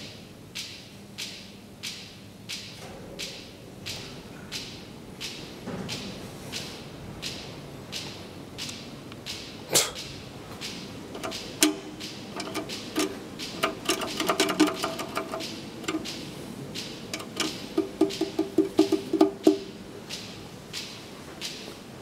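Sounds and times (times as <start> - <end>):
elevator button clicks: 11.1 - 19.8.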